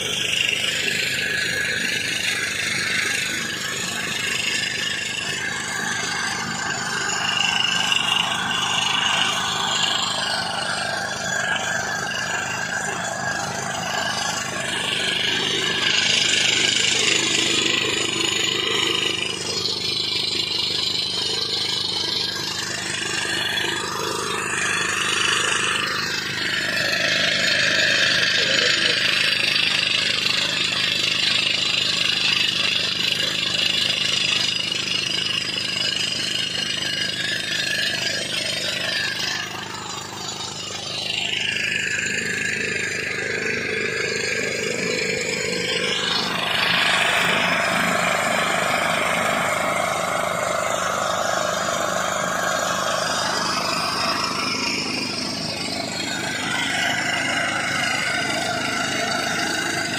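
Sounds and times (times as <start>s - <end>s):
air compressor running: 0.0s - 59.9s
pneumatic rock drill hammering: 0.0s - 59.9s.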